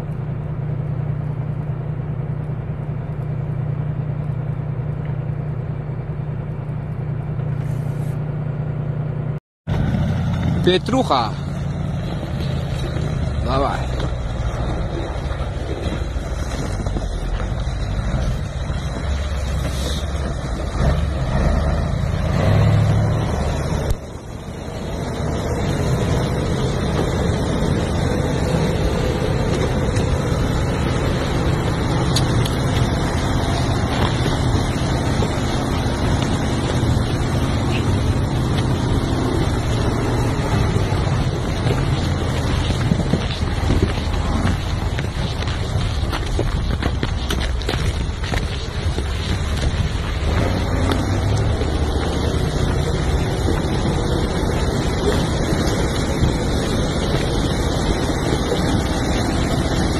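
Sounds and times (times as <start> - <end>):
truck diesel engine rumbling: 0.0 - 59.9.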